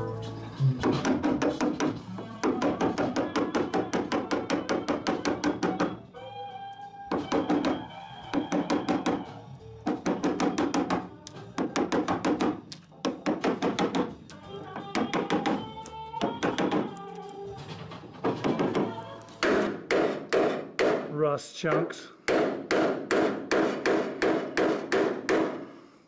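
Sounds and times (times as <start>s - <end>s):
hammer on sheet metal: 18.4s - 21.1s, 21.7s - 25.7s.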